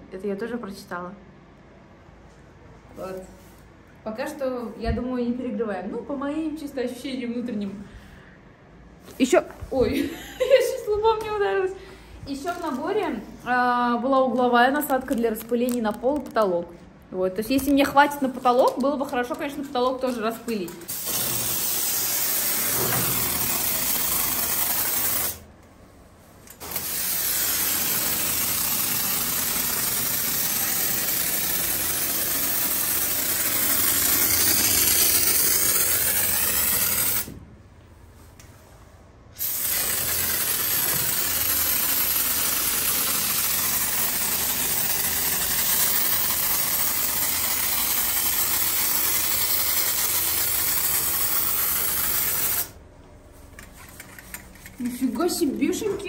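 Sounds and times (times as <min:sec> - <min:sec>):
spray foam can hissing: 0:20.9 - 0:25.4, 0:26.6 - 0:37.3, 0:39.4 - 0:52.8.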